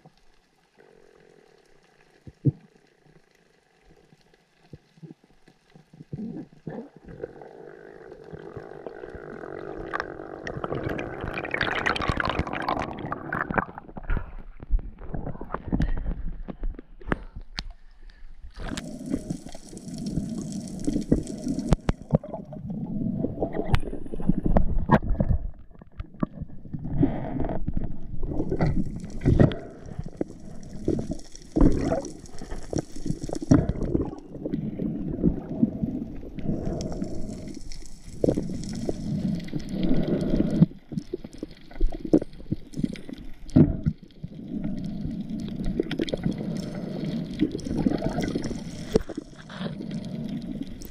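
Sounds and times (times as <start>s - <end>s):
water sloshing and gurgling: 4.7s - 50.9s.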